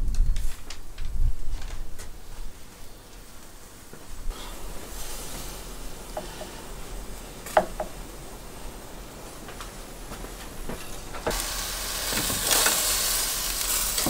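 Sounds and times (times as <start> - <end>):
faint hiss: 0.3 - 14.0
metal skewers knocking on wood: 7.5 - 8.0.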